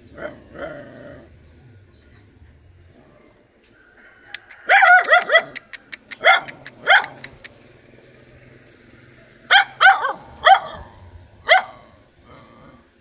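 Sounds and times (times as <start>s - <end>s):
dog barking: 4.6s - 7.4s, 9.5s - 12.0s.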